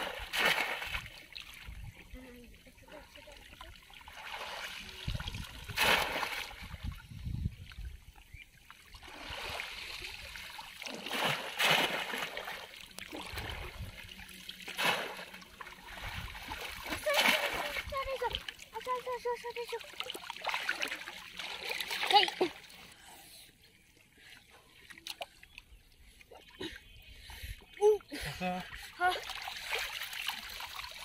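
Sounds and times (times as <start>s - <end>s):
loud water splashes: 0.0s - 1.2s, 4.0s - 6.8s, 9.0s - 13.9s, 14.6s - 18.9s
shallow water sloshing: 0.0s - 7.0s, 7.6s - 22.9s.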